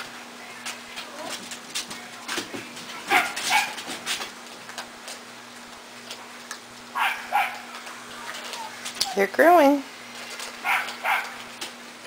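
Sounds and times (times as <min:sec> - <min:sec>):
puppies yipping and whimpering: 0:08.3 - 0:09.3
puppies eating kibble from metal bowl: 0:10.1 - 0:11.7.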